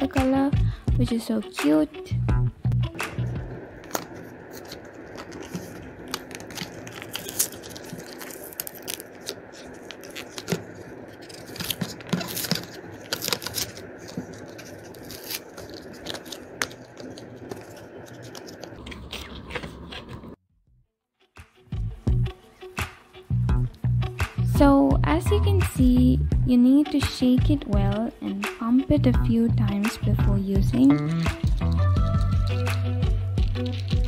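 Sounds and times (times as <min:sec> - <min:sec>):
plastic blister pack torn open: 0:03.8 - 0:19.8, 0:30.9 - 0:34.0.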